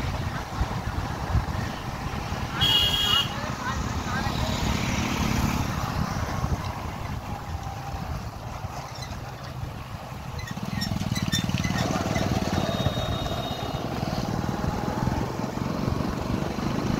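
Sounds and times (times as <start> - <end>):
road noise: 0.0 - 16.9
wind: 0.0 - 16.9
motorcycle engine running: 10.4 - 16.9.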